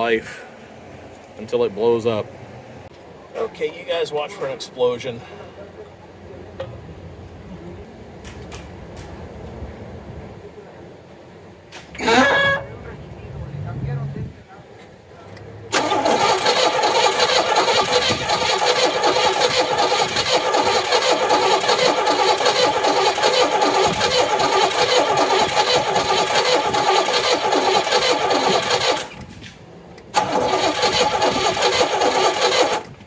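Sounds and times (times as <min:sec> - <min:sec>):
starter motor cranking engine: 0:15.7 - 0:29.3, 0:30.1 - 0:33.0.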